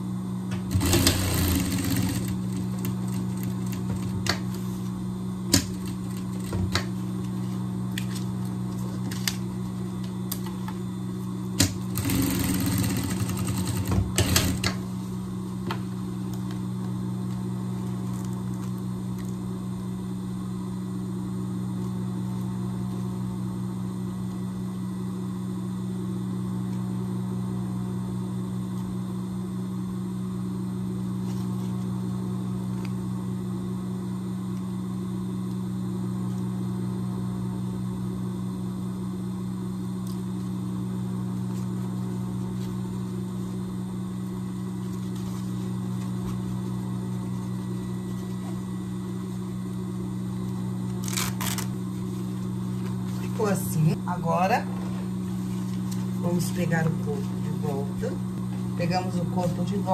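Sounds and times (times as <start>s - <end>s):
steady low hum: 0.0s - 59.9s
sewing machine stitching: 0.7s - 2.6s, 11.6s - 14.8s.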